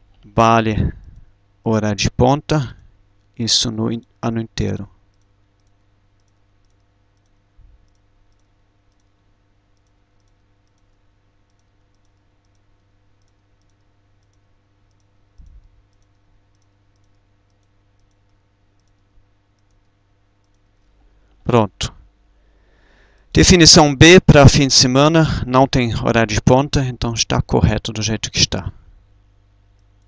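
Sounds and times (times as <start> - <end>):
low steady hum: 0.0 - 30.0
computer clicks: 5.1 - 21.1.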